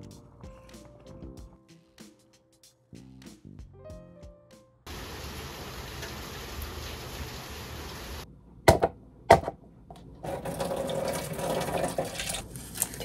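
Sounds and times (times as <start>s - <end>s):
room tone hiss: 4.9s - 8.6s
paper and foil lid crinkling: 11.8s - 13.0s.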